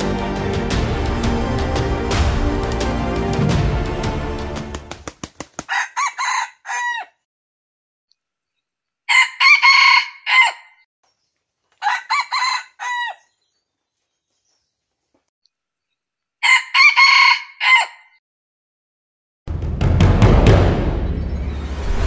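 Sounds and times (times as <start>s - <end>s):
background music: 0.0s - 5.1s, 19.5s - 22.0s
rooster crowing: 5.7s - 7.2s, 9.1s - 10.8s, 11.8s - 13.3s, 16.4s - 18.2s.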